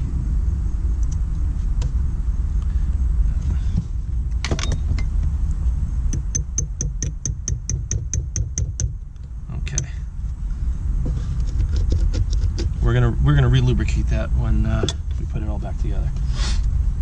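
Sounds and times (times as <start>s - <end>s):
low rumble: 0.0s - 17.0s
hammer tapping metal punch: 6.1s - 9.0s.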